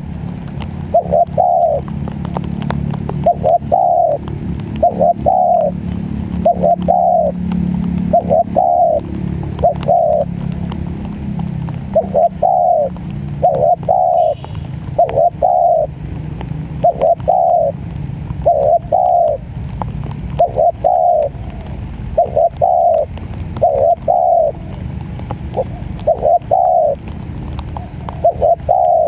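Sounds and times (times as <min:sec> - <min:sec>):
dove cooing: 0:00.0 - 0:29.0.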